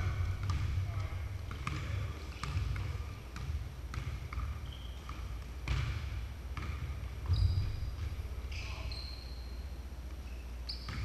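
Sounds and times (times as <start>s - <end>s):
basketball bouncing on wooden floor: 0.0s - 8.2s
shoe squeak: 4.5s - 5.3s, 7.3s - 11.0s.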